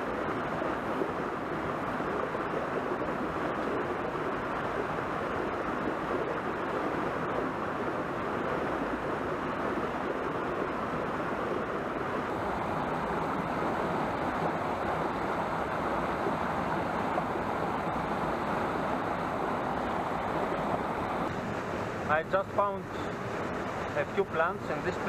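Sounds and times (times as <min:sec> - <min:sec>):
stream rushing over rocks: 0:10.8 - 0:25.0.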